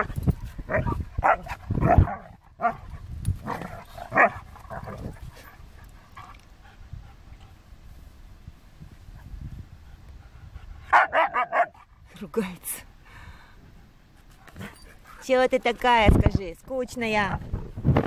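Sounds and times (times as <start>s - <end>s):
dogs barking and yipping: 0.0s - 6.4s, 10.9s - 11.9s.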